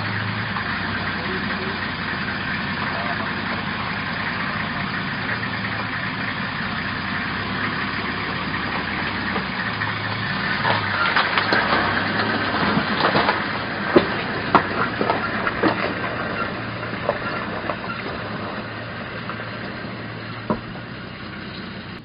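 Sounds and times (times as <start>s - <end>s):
vehicle engine idling: 0.0s - 22.0s
crackling clicks: 8.6s - 22.0s.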